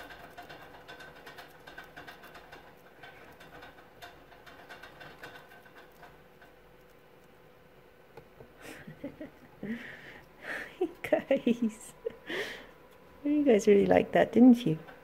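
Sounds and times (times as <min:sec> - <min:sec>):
mice nibbling and chewing: 0:00.0 - 0:08.6.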